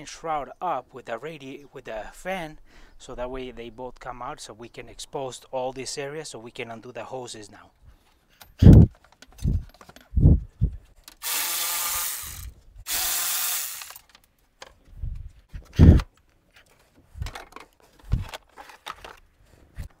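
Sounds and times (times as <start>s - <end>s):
plastic parts knocking and bumping: 8.4s - 10.3s, 15.6s - 20.0s.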